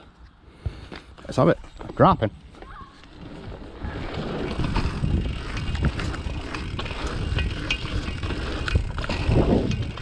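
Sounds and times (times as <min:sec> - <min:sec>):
bike tyres rolling: 0:00.0 - 0:10.0
wind buffeting microphone: 0:03.1 - 0:10.0
bike chain rattling and clicking: 0:04.2 - 0:10.0.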